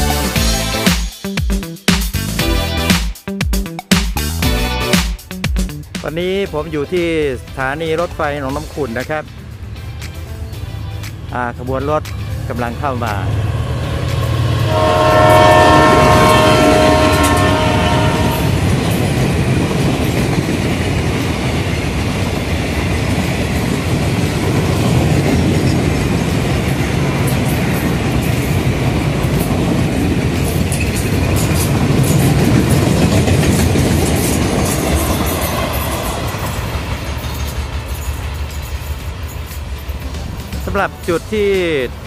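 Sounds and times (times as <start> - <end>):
train wheels clickety-clack: 13.0 - 14.7, 18.2 - 42.0
locomotive horn: 14.6 - 18.6.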